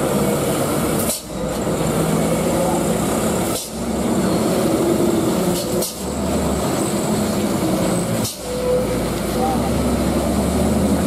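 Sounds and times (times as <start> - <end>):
diesel truck engines under load: 0.0 - 11.0.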